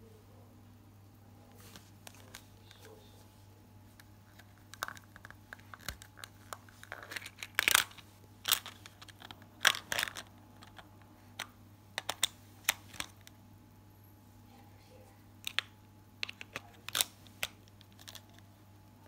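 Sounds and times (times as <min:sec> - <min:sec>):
batteries clicking into plastic case: 0:04.4 - 0:13.3, 0:15.4 - 0:18.4.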